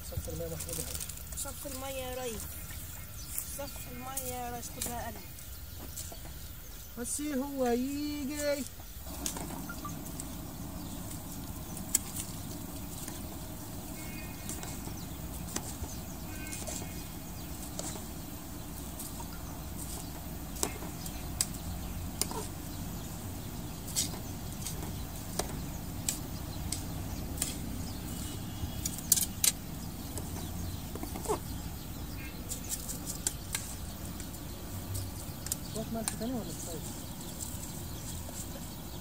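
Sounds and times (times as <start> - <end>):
steady low rumble: 8.0 - 39.0.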